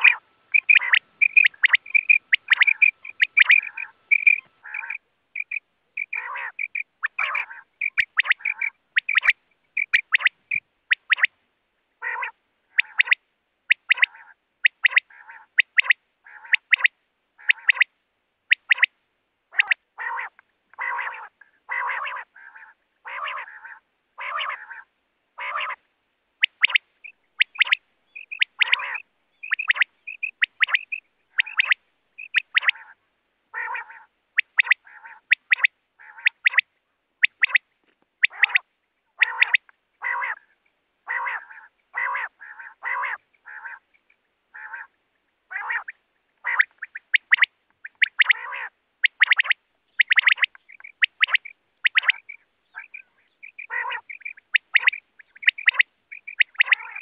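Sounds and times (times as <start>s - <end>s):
quail calling: 0.0s - 11.4s, 12.0s - 17.9s, 18.5s - 57.0s.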